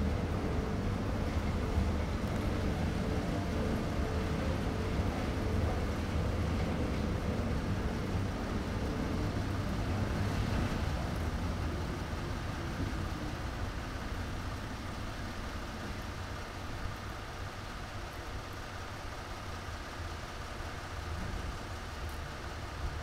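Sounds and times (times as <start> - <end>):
steady low rumble: 0.0 - 18.1.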